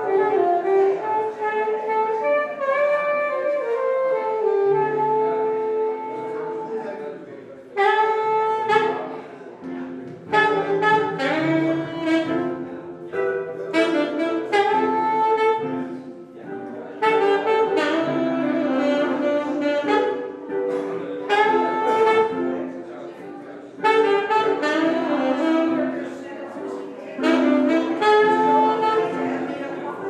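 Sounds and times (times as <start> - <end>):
saxophone jazz phrases: 0.0 - 30.0
acoustic guitar accompaniment: 20.2 - 23.7.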